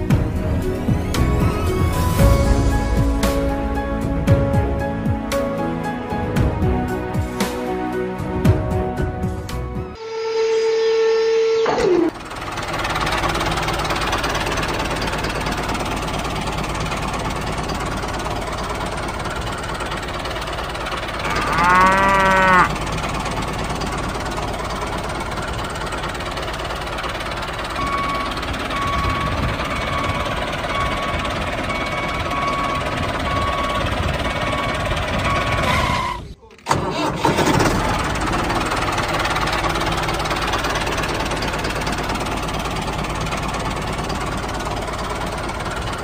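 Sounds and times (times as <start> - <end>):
tractor engine running: 0.0 - 9.7, 11.6 - 46.0
cow mooing: 21.2 - 22.8.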